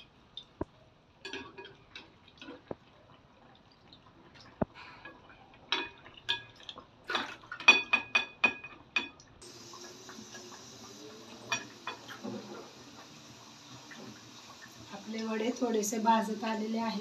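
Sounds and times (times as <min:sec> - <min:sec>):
deep-frying hiss in hot oil: 0:09.4 - 0:17.0.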